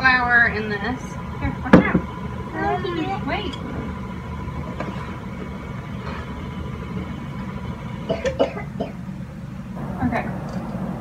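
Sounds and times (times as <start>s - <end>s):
person coughing: 8.1s - 9.0s.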